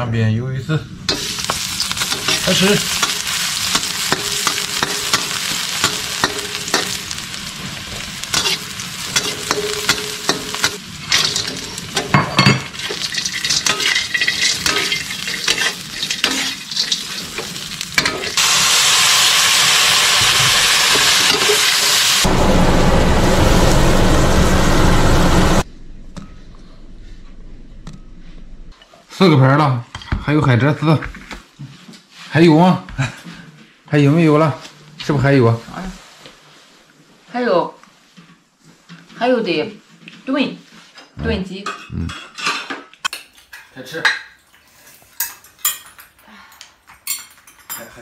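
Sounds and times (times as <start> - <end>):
metal spatula scraping a pan: 1.1 - 18.4
oil sizzling in a wok: 1.1 - 25.6
loud steady hiss: 17.1 - 25.6
low rumble: 22.2 - 28.7.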